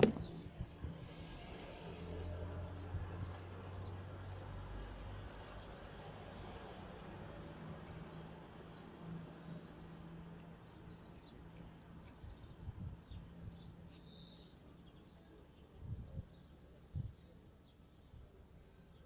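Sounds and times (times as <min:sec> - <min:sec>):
low thumps: 0:00.0 - 0:00.7
faint bird chirps: 0:12.3 - 0:19.0.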